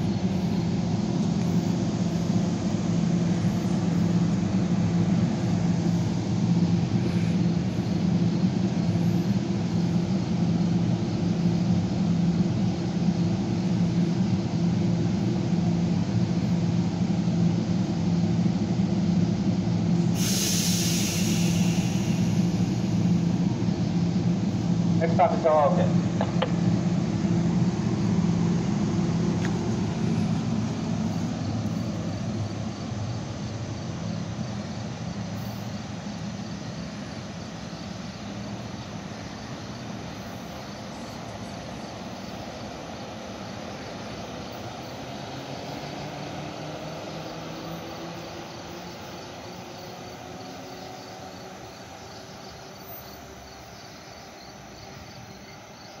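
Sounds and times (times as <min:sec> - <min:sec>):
crickets chirping: 0:00.0 - 0:56.0
locomotive diesel engine drone: 0:00.0 - 0:56.0.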